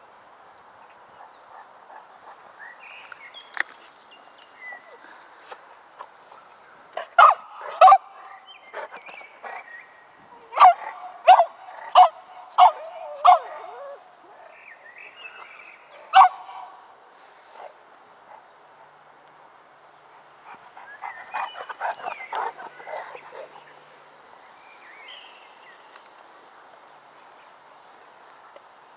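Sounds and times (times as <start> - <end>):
dog barking: 7.2 - 8.5, 10.5 - 13.9, 16.1 - 16.7.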